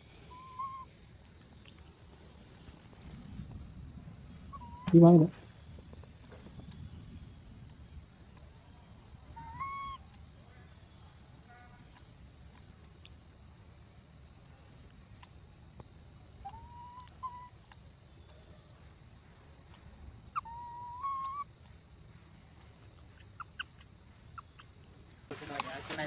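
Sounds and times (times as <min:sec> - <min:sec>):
macaque coo calls: 0:00.3 - 0:00.9, 0:04.5 - 0:05.3, 0:09.4 - 0:10.0, 0:16.4 - 0:17.8, 0:20.4 - 0:21.5
faint clicks: 0:05.8 - 0:06.9, 0:17.0 - 0:18.4.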